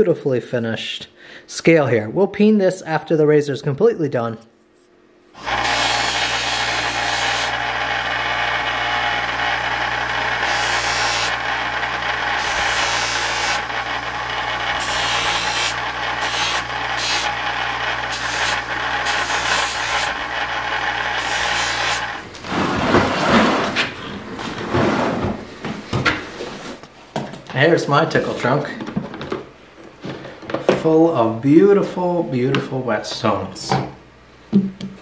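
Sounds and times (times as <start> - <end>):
bench buffer motor hum: 5.3 - 27.0.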